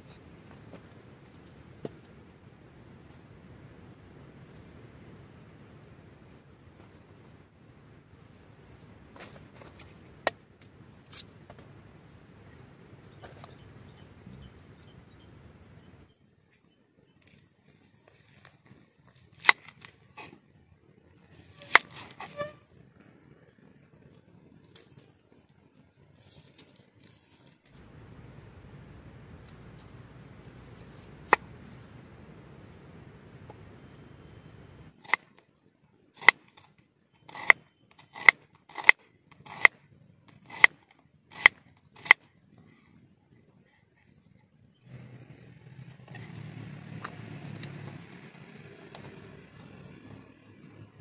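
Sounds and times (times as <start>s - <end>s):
knife slicing onion: 21.5s - 22.6s, 37.3s - 39.7s, 40.3s - 42.2s.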